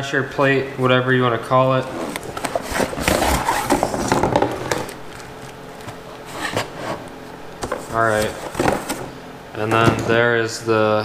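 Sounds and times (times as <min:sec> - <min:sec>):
cardboard and plastic rustling: 0:01.9 - 0:10.1.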